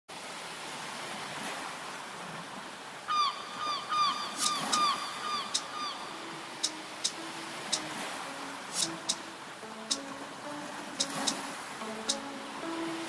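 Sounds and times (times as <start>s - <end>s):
surf washing: 0.2s - 13.0s
sharp clicks: 8.8s - 9.2s.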